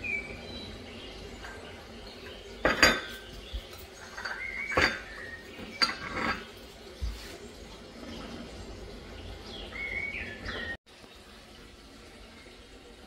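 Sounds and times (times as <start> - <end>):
dishes and cutlery clinking: 1.4 - 7.2.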